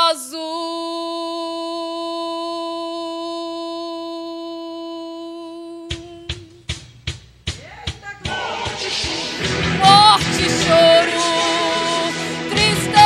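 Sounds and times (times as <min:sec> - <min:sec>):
drum beat: 0:05.9 - 0:13.0.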